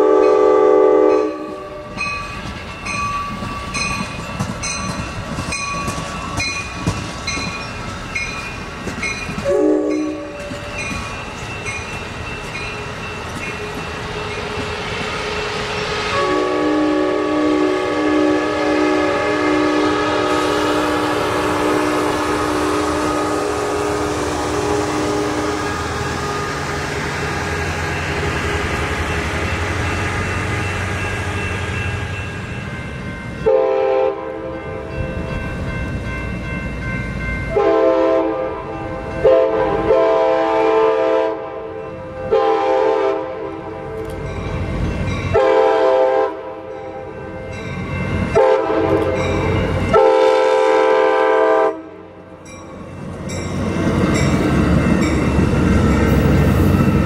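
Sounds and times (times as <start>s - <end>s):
train horn blasts: 0.0s - 2.0s, 9.4s - 10.6s, 15.2s - 26.6s, 33.4s - 34.8s, 37.5s - 44.1s, 45.3s - 46.7s, 48.3s - 52.2s
freight train rumbling past: 0.0s - 57.0s.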